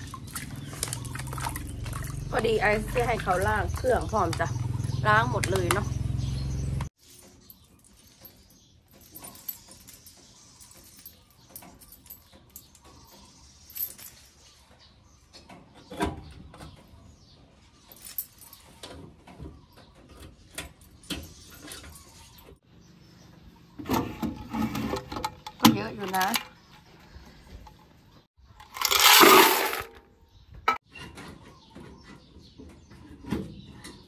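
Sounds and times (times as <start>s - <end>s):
keys jangling: 7.0s - 14.5s.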